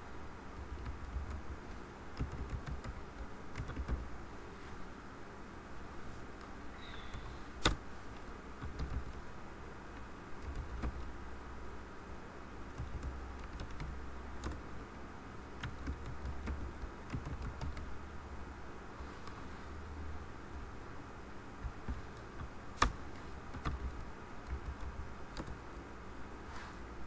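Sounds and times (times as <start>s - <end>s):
keyboard typing: 0.6s - 4.1s, 8.6s - 9.3s, 10.4s - 11.1s, 12.7s - 14.7s, 15.6s - 18.0s, 21.6s - 25.6s.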